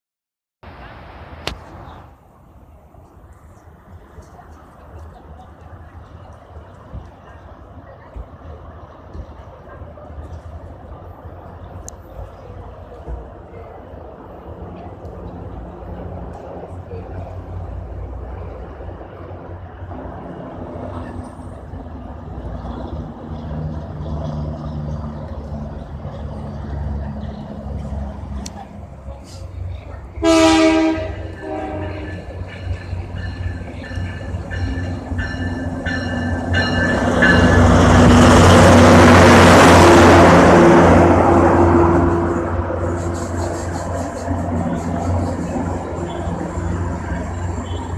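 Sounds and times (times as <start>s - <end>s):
diesel locomotive engine rumble: 0.6s - 47.9s
train wheels on rails: 0.8s - 47.9s
locomotive bell ringing: 30.2s - 38.3s.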